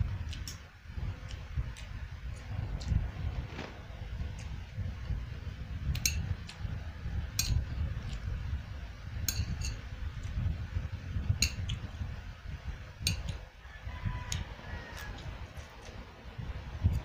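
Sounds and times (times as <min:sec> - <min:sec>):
low steady rumble: 0:00.0 - 0:17.0
metal chopsticks clinking on plate: 0:11.4 - 0:11.7, 0:13.0 - 0:13.4.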